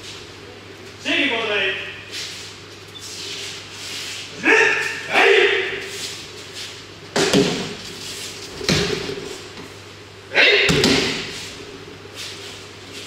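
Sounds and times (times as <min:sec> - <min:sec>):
short shout: 0:04.4 - 0:05.9, 0:10.3 - 0:10.7.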